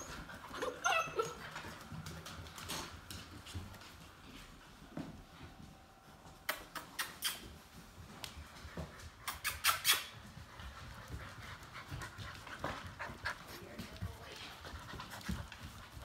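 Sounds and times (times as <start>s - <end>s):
puppies squeaking: 0.0s - 1.6s, 9.2s - 10.2s.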